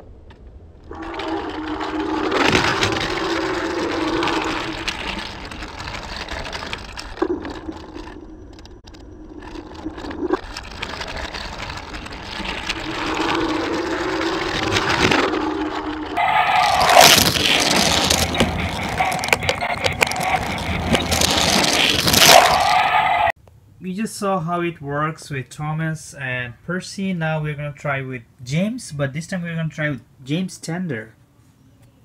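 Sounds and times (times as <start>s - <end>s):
toy train rattling on plastic track: 10.4s - 15.1s.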